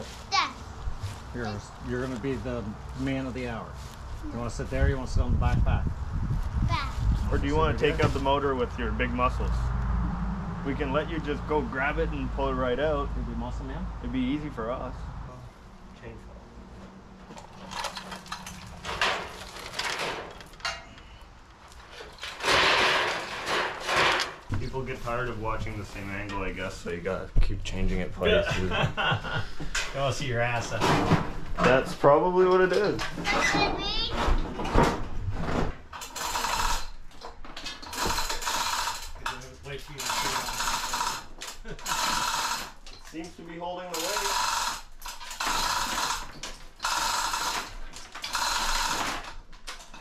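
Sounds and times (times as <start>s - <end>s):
junk knocking and scraping in truck: 17.2s - 21.0s, 21.8s - 24.8s, 32.5s - 39.5s
chain hoist ratcheting clicks: 17.4s - 21.1s, 36.0s - 43.2s, 43.9s - 50.0s.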